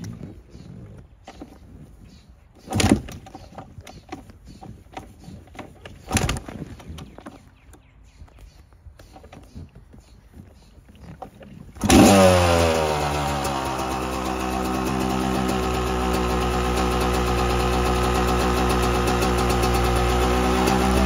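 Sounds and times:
motorcycle engine starting and idling: 2.6s - 7.5s, 11.6s - 21.0s.

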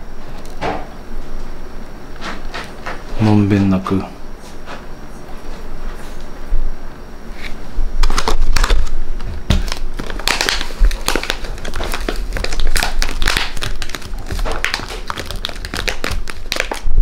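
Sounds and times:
plastic pouch crinkling: 8.0s - 17.0s.

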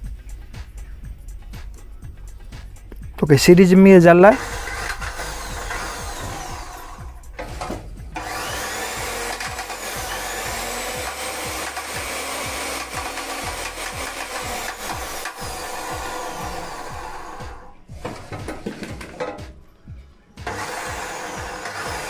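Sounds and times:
saw motor running: 3.5s - 22.0s
faint rising whine: 4.4s - 8.8s, 14.3s - 18.2s.

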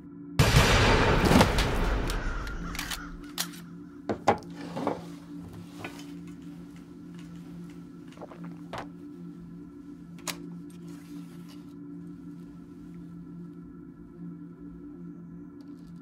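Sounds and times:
steady low hum: 0.0s - 16.0s
sudden loud bang: 0.4s - 2.7s.

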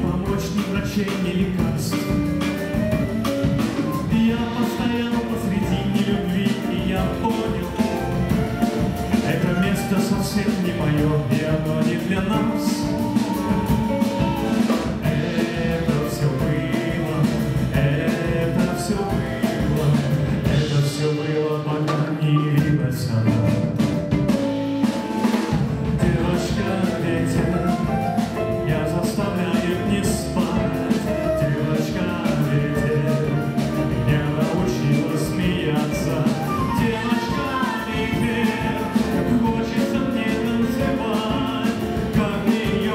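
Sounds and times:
drum kit beat: 0.0s - 42.9s
live band playing: 0.0s - 42.9s.

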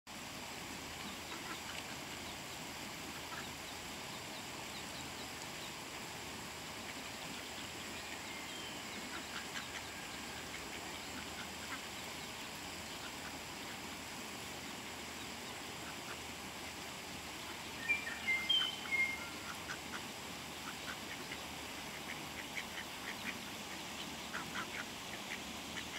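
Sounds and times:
ducklings peeping: 1.0s - 5.8s, 6.8s - 13.9s, 17.4s - 25.9s.

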